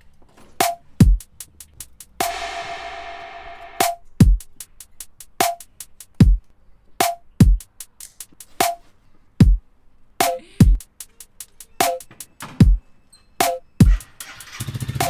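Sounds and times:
hi-hat ticks: 0:00.9 - 0:02.8, 0:03.6 - 0:09.6, 0:10.2 - 0:12.4
deep kick drums: 0:01.0 - 0:01.2, 0:04.2 - 0:04.4, 0:07.4 - 0:07.6, 0:10.6 - 0:10.8
snappy snare drum: 0:01.0 - 0:02.5, 0:03.8 - 0:06.4, 0:07.0 - 0:08.8, 0:10.2 - 0:12.8, 0:13.4 - 0:14.1
electronic music with drum machine: 0:01.0 - 0:06.4, 0:10.2 - 0:12.8, 0:13.4 - 0:14.2.

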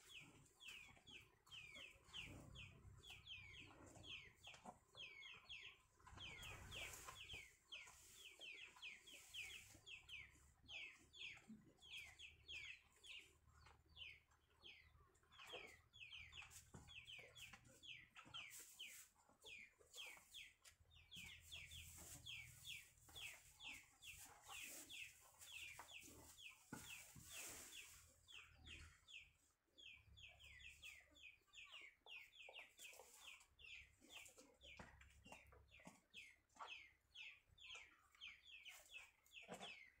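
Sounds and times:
chicks peeping: 0:00.0 - 0:40.0.

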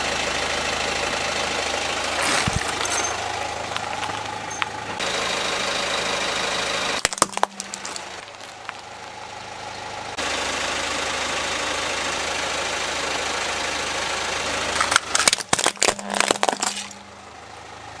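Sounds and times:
car engine running: 0:00.0 - 0:18.0
plastic toy cracking and snapping: 0:14.8 - 0:17.0.

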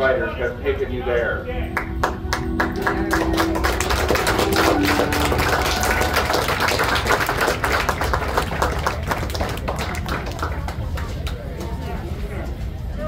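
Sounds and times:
audience applauding: 0:01.8 - 0:11.4.

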